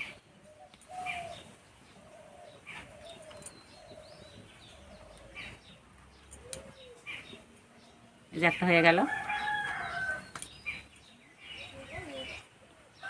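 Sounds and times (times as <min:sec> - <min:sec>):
dove cooing: 0:00.0 - 0:08.3.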